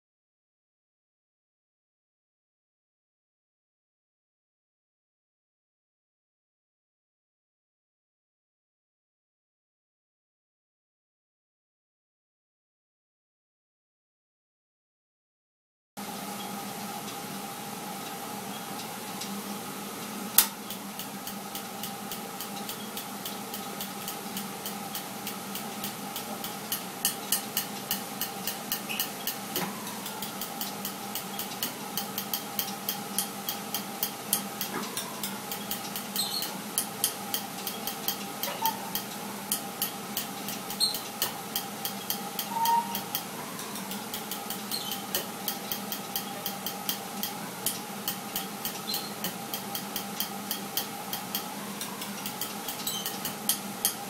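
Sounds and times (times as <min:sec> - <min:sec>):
steady hum: 0:16.0 - 0:54.0
spark igniter clicking: 0:20.3 - 0:42.4.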